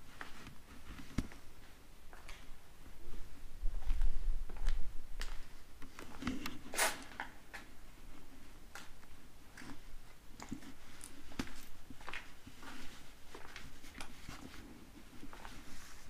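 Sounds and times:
footsteps crunching on debris: 0:08.7 - 0:14.5.

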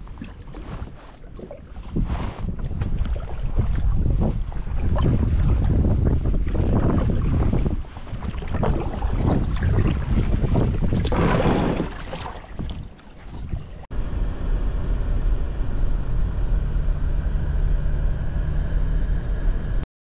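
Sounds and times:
wind buffeting microphone: 0:00.0 - 0:13.8
water splashing from paddling: 0:00.0 - 0:13.9
vehicle cabin road rumble: 0:12.6 - 0:19.8.

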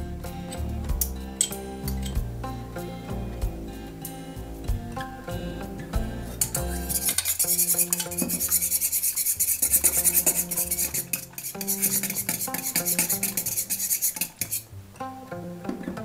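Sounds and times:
metal whisk beating eggs in bowl: 0:06.4 - 0:14.6.

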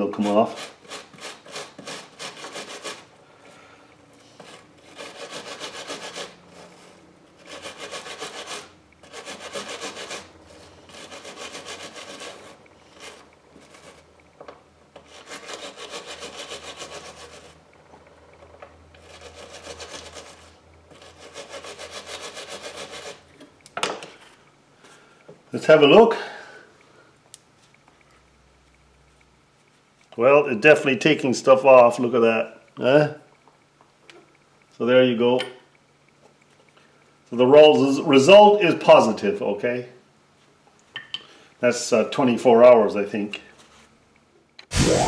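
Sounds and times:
wire brush scraping metal: 0:04.2 - 0:14.1, 0:15.0 - 0:17.6.

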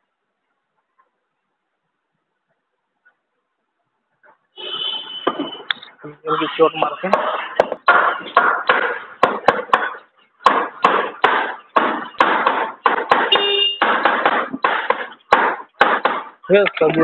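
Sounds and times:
hammer blows on engine casing: 0:07.1 - 0:16.5.

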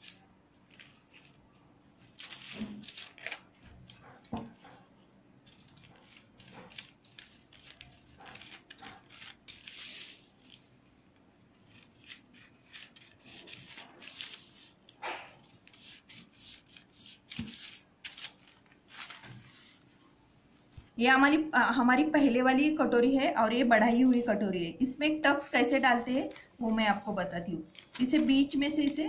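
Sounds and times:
scissors snipping newspaper: 0:00.0 - 0:01.4, 0:02.0 - 0:04.8, 0:05.4 - 0:10.6, 0:11.6 - 0:19.2
paper rustling: 0:00.0 - 0:04.8, 0:05.4 - 0:10.7, 0:11.7 - 0:19.9.

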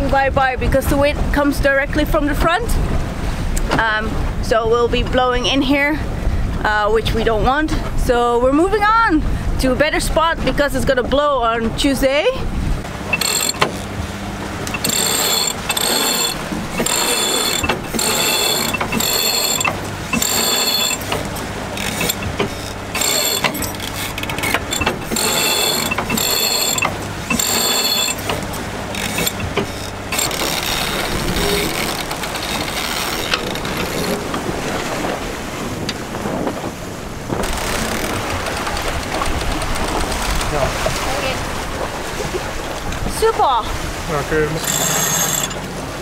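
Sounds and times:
water noise: 0:00.0 - 0:46.0
wind: 0:00.0 - 0:46.0
winch ratcheting: 0:13.0 - 0:14.0, 0:14.6 - 0:34.4, 0:37.4 - 0:40.6, 0:44.6 - 0:45.7.

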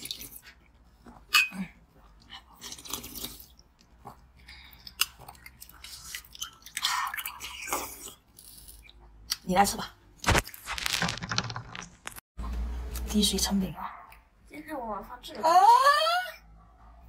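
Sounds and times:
person crunching and chewing ice: 0:10.3 - 0:12.2.

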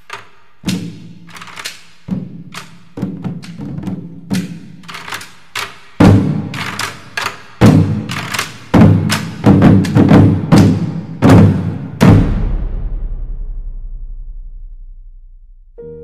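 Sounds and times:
percussion music: 0:00.0 - 0:15.2
sharp drum strikes: 0:06.0 - 0:06.9, 0:07.6 - 0:15.4.

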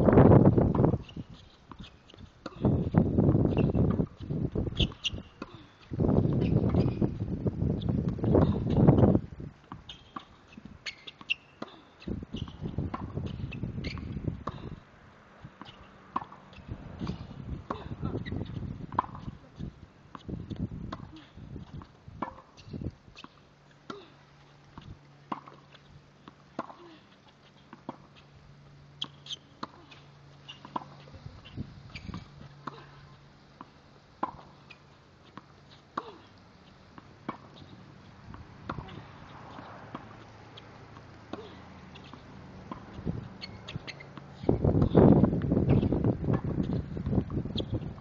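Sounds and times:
tennis ball bouncing on court: 0:00.6 - 0:07.2, 0:08.0 - 0:14.8, 0:15.5 - 0:24.1, 0:24.7 - 0:26.9, 0:29.0 - 0:48.0
racket striking tennis ball: 0:09.7 - 0:14.8, 0:15.6 - 0:16.4, 0:17.0 - 0:24.0, 0:29.0 - 0:48.0.

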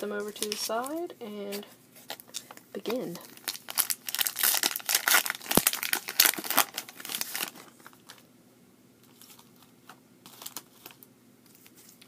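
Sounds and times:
cards rustling: 0:00.2 - 0:08.2, 0:09.0 - 0:12.0
foil wrapper crinkling and tearing: 0:03.2 - 0:08.2, 0:09.1 - 0:12.0.

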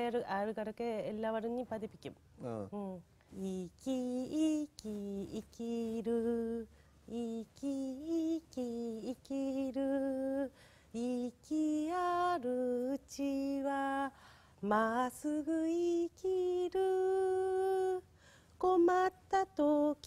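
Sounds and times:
woman singing unaccompanied: 0:00.0 - 0:20.0
singer breathing: 0:10.5 - 0:11.0, 0:14.2 - 0:14.6, 0:18.1 - 0:18.6.

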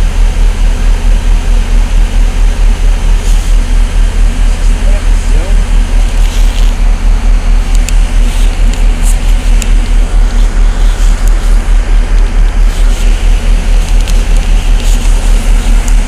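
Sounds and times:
vehicle engine idling: 0:00.0 - 0:16.0.

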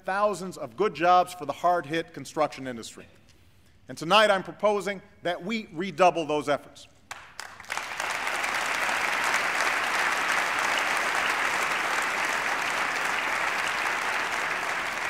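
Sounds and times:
audience applauding: 0:07.1 - 0:15.0.

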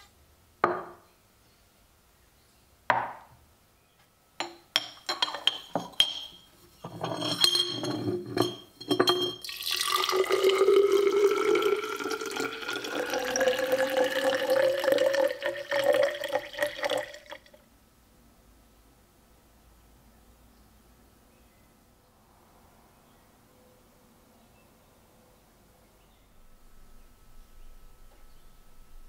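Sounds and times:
glass knocking and clinking: 0:00.6 - 0:01.0, 0:02.9 - 0:03.3, 0:04.4 - 0:17.2
liquid pouring into glass: 0:07.1 - 0:17.6.

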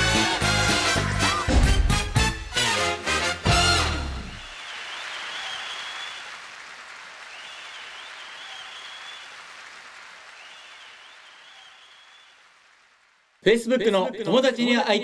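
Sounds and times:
applause: 0:04.3 - 0:13.7.

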